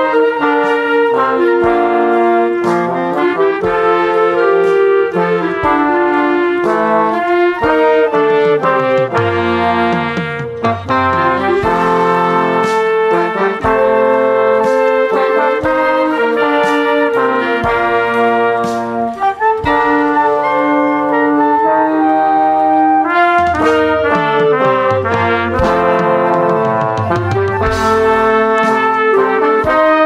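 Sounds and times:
brass chords and melody: 0.0 - 30.0
drum hits: 5.2 - 20.2, 23.2 - 30.0.

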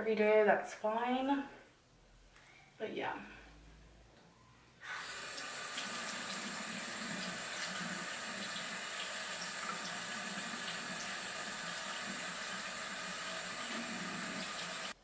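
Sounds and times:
face being washed by hand: 4.8 - 15.0
faucet running into sink: 4.9 - 15.0.

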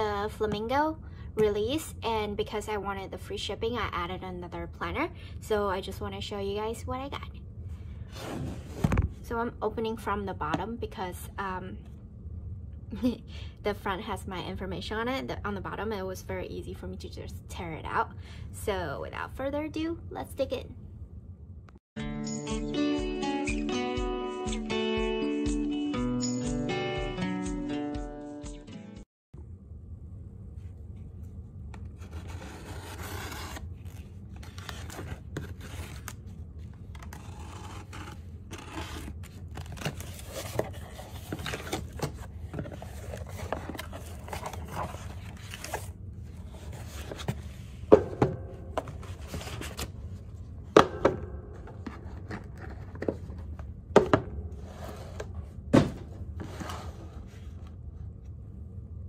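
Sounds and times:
cardboard scraping and rustling: 8.1 - 9.2, 31.8 - 36.2, 36.9 - 47.8, 48.8 - 50.0, 54.6 - 57.7.

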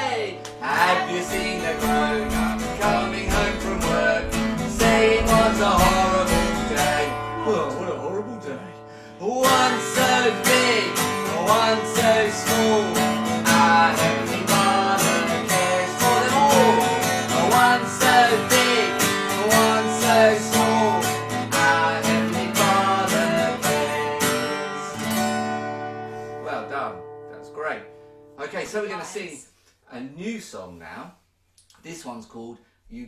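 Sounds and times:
man and woman singing: 0.0 - 8.0, 9.2 - 25.0
acoustic guitar strumming: 0.0 - 28.5.

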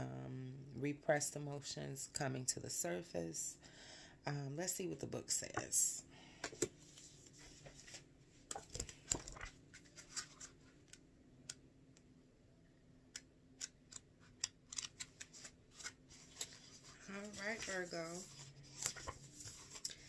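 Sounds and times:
book pages flicking and rustling: 6.6 - 11.0, 13.9 - 20.0.

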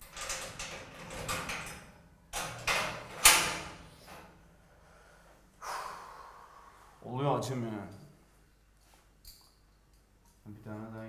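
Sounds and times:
metal door clank: 0.0 - 4.3.

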